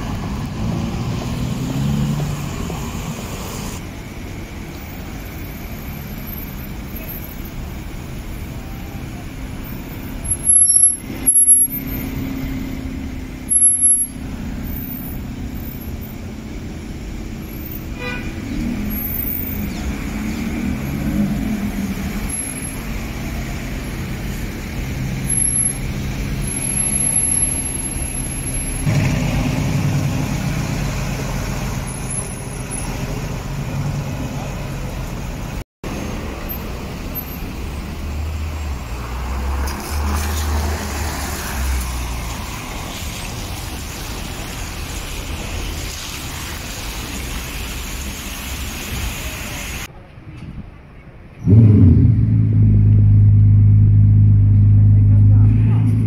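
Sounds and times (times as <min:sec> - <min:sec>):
traffic rumbling: 0:00.0 - 0:56.0
car engine running: 0:51.5 - 0:56.0.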